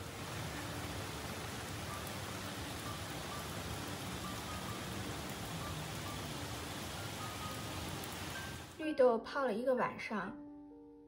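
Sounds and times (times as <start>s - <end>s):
rain on a wooden deck: 0.0s - 8.8s.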